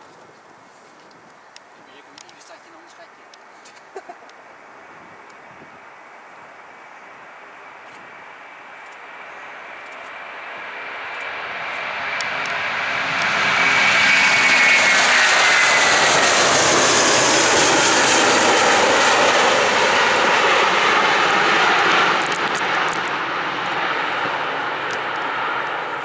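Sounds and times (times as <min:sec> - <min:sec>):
jet engines roaring at take-off: 0:06.6 - 0:26.0.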